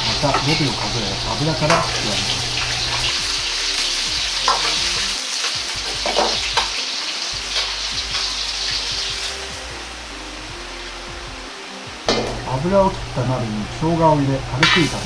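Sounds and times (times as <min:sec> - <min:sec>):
vegetables sizzling in hot oil: 0:00.0 - 0:10.2, 0:14.4 - 0:15.0.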